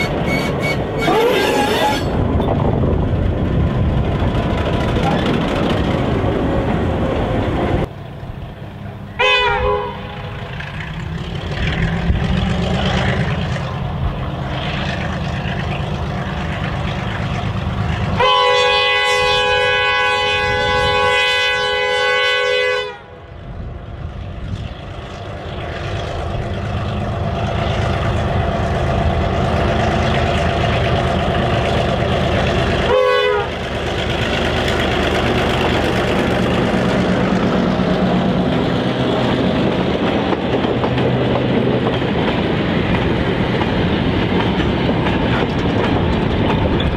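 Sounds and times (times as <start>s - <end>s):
diesel locomotive engine rumbling: 0.0s - 46.9s
locomotive chime horn: 9.2s - 10.4s, 18.2s - 23.2s, 32.9s - 33.6s.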